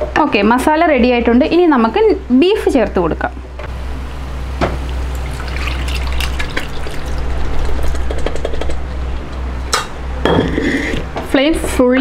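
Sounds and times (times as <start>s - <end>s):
broth splashing into a pan: 4.7s - 8.3s.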